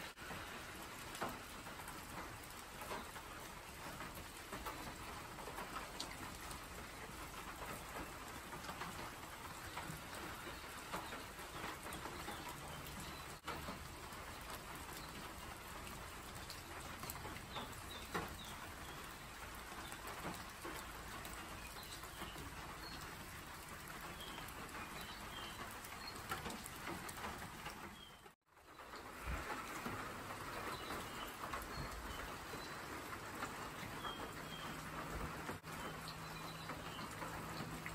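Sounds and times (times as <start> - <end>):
rain falling on foliage: 0.0 - 37.9
water drips: 0.0 - 37.9.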